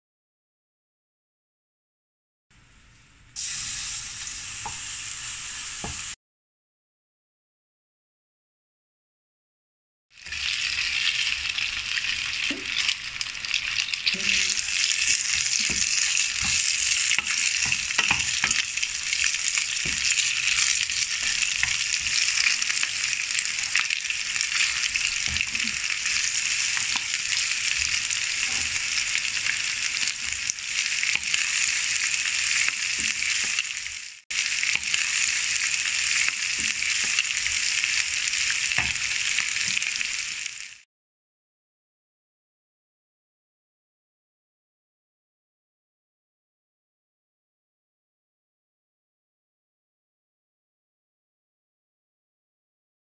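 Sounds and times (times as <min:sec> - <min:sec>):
food sizzling in a wok: 0:03.4 - 0:06.2, 0:10.1 - 0:40.9
wooden spoon knocking in pan: 0:15.3 - 0:18.7, 0:19.8 - 0:20.4.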